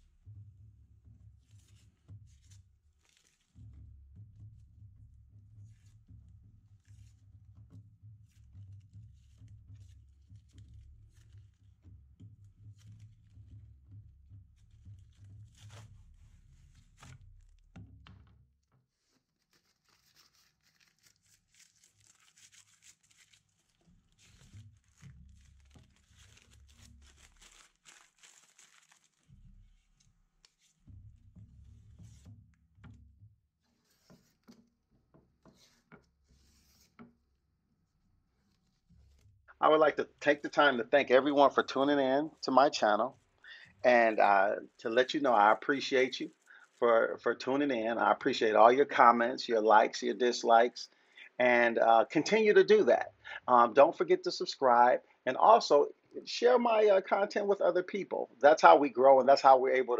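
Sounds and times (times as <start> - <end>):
tape peeling and ripping: 1.5 - 3.7, 8.3 - 11.7, 14.6 - 17.8, 18.9 - 31.0.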